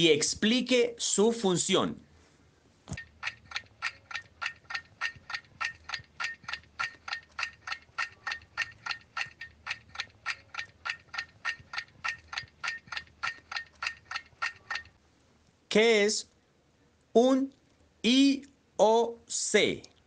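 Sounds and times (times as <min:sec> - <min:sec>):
clock ticking: 0:02.9 - 0:15.0.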